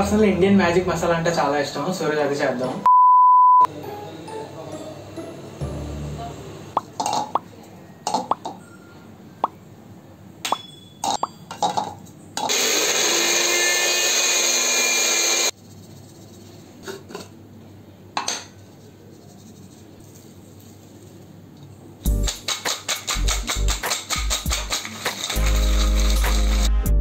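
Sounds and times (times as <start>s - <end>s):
electric mixer grinder running: 12.5s - 15.5s, 24.2s - 26.7s.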